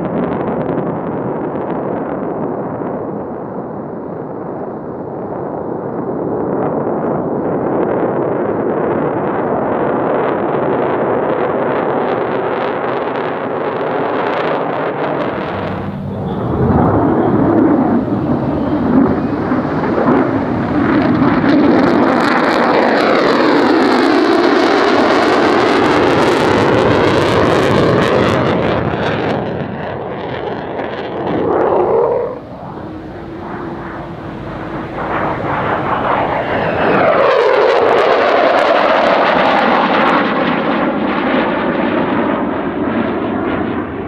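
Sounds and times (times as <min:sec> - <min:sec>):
jet roar: 0:00.0 - 0:44.0
phasing whoosh: 0:15.2 - 0:22.6, 0:31.2 - 0:37.3.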